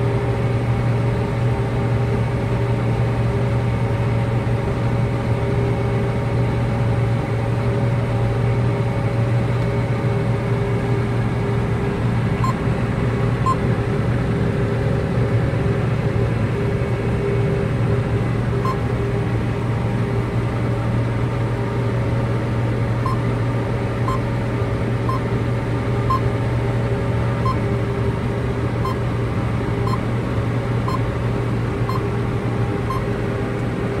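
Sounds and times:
machine drone from inside cab: 0.0 - 34.0
short electronic beep: 23.0 - 23.2, 32.9 - 33.1.

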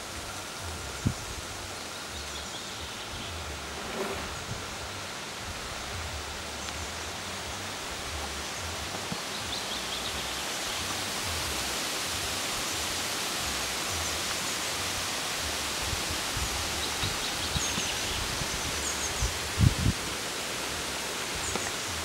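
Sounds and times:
wind through leaves and grass: 0.0 - 22.0
wind rumble on microphone: 0.2 - 1.8, 3.0 - 6.5, 15.7 - 20.3.

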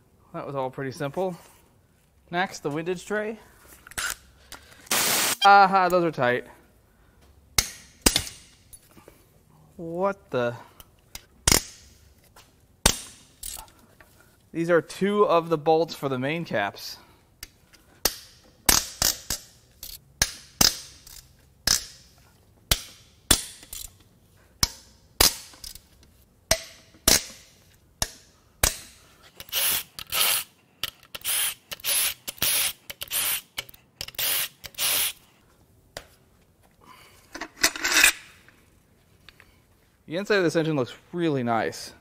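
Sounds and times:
power tool bursts: 4.9 - 5.4
sharp metallic cracks: 4.9 - 5.4, 11.4 - 12.0, 12.8 - 13.6, 18.0 - 24.0, 24.6 - 25.8, 26.5 - 35.2.

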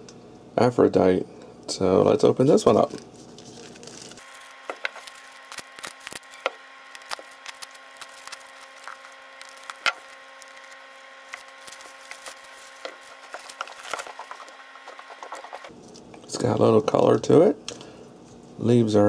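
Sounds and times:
faint steady hum: 0.0 - 19.0
plastic wrap crackling: 2.5 - 15.8.

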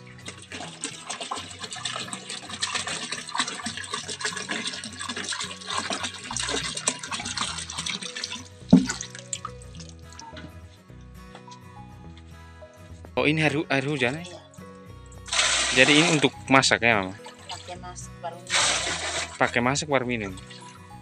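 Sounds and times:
water pouring into basin: 0.0 - 10.2, 15.2 - 17.8, 18.5 - 20.9.

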